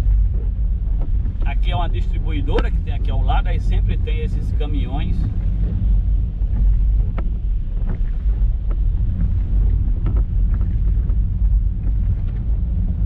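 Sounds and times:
car driving on wet road: 0.0s - 13.0s.

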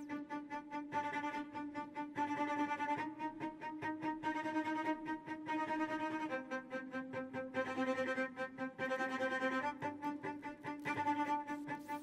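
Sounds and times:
background music with sustained notes: 0.0s - 12.0s.

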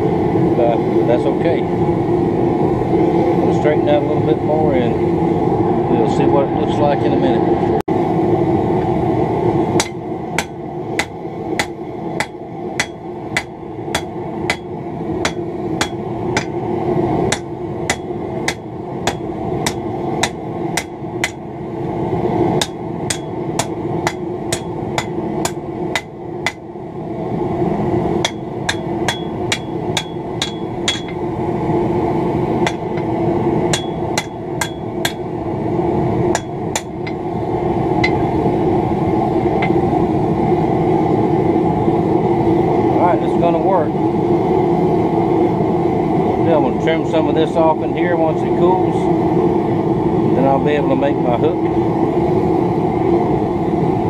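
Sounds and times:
steady low hum: 0.0s - 54.0s
hammer striking steel on anvil: 9.8s - 16.6s, 17.3s - 21.4s, 22.6s - 26.7s, 28.2s - 31.3s, 32.6s - 33.1s, 33.7s - 35.3s, 36.3s - 37.2s, 38.0s - 38.2s, 39.5s - 39.8s.

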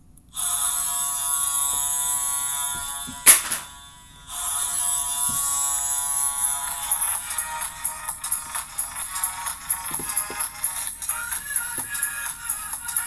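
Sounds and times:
loud click: 3.3s - 3.7s.

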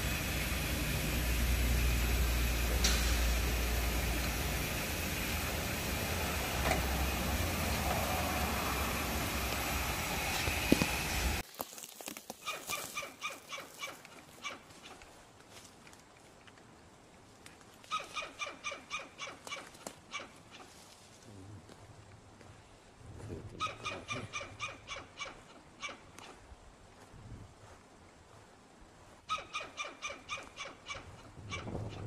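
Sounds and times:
squirrel barking alarm call: 12.4s - 15.0s, 17.9s - 20.7s, 23.6s - 26.4s, 29.3s - 32.0s.

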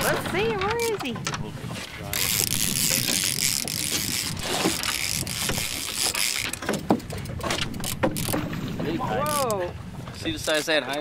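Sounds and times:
wind and water hiss: 0.0s - 11.0s
fishing reel gears clicking: 2.1s - 6.7s, 7.7s - 8.4s, 9.2s - 9.6s, 10.4s - 11.0s.

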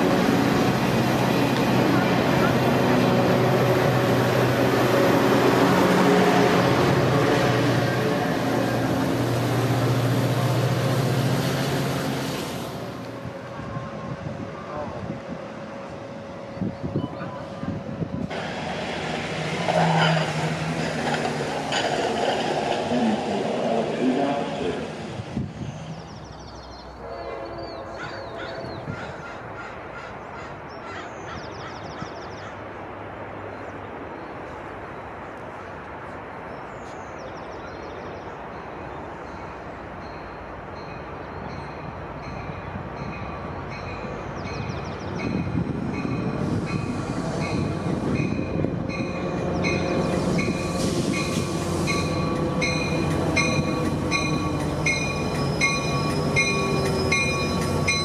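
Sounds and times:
diesel train passing: 0.0s - 30.8s, 31.4s - 58.0s
train horn: 13.6s - 15.2s, 27.0s - 28.9s
train bell ringing: 48.2s - 58.0s.

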